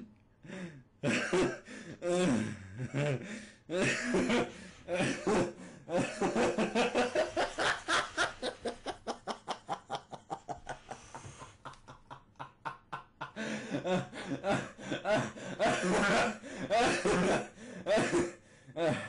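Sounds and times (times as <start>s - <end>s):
person laughing hard: 3.8s - 17.5s.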